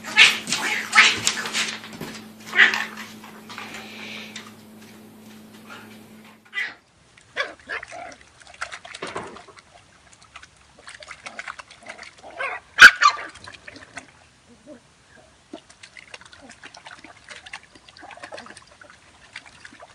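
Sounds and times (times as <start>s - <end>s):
puppy yipping and grunting: 0.0s - 1.7s, 2.4s - 3.0s
water splashing in basin: 6.5s - 14.4s, 15.4s - 19.9s.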